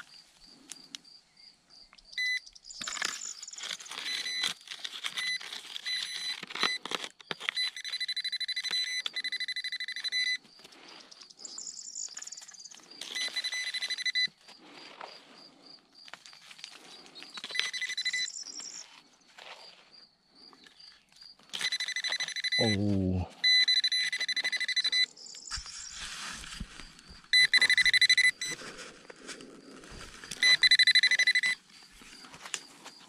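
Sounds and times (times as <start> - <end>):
metal detector electronic beeping: 2.1 - 2.5, 4.0 - 4.5, 5.2 - 6.8, 7.4 - 10.5, 13.1 - 14.4, 17.4 - 18.8, 21.5 - 26.0, 27.3 - 28.6, 30.4 - 31.6
probe scraping in earth: 25.4 - 30.6.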